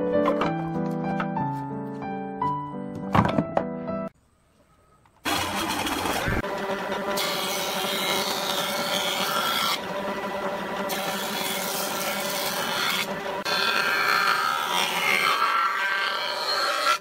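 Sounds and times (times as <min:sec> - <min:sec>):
machine hum: 0:04.2 - 0:13.5
wood planing rasp: 0:05.3 - 0:17.0.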